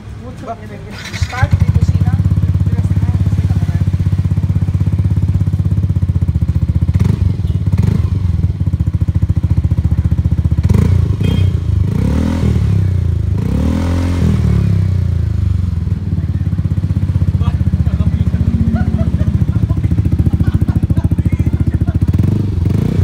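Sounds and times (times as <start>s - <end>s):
scooter engine idling: 0.2s - 12.0s, 12.6s - 13.4s, 14.5s - 23.0s
engine revving from throttle blips: 6.9s - 8.4s, 10.6s - 15.4s, 22.1s - 23.0s.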